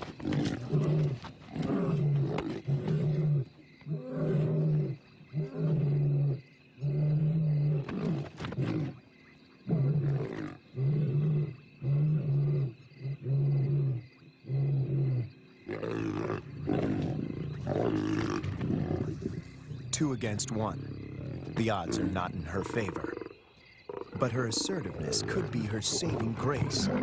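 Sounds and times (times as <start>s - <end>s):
lioness snarling: 0.0s - 9.0s, 9.6s - 27.0s
lions calling: 9.7s - 27.0s.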